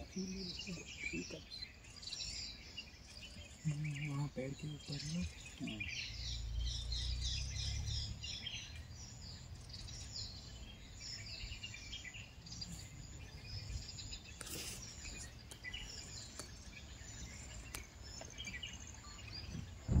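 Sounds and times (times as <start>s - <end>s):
birds chirping and calling: 0.0s - 20.0s
low rumble: 19.6s - 20.0s.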